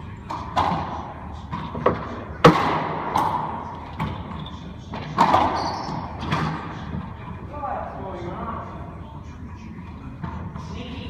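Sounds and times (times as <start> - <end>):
ball hitting court walls: 4.9 - 6.6
racquet striking ball: 5.1 - 6.6.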